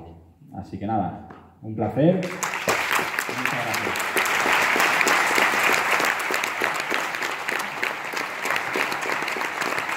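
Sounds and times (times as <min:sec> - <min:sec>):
audience applauding: 0:02.2 - 0:09.9.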